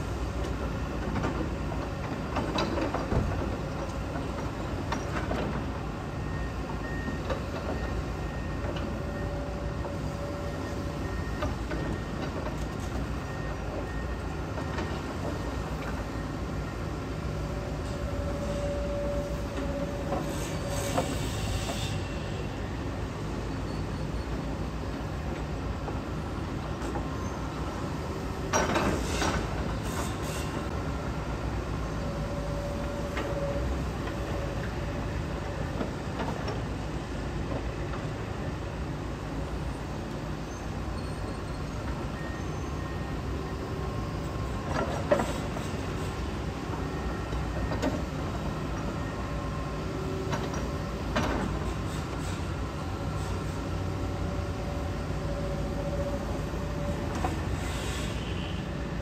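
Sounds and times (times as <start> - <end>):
excavator engine drone: 0.0 - 20.3.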